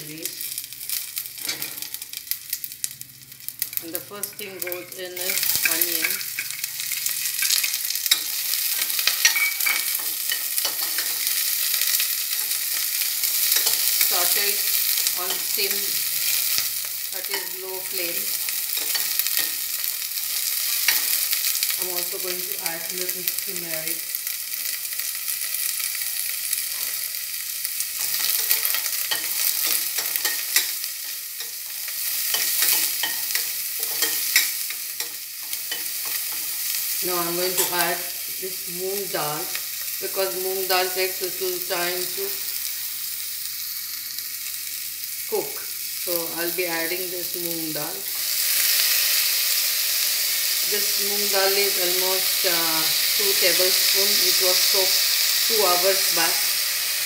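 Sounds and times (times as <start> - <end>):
onion sizzling in oil: 0.0 - 57.0
spoon scraping pan bottom: 5.3 - 11.5, 28.0 - 36.7.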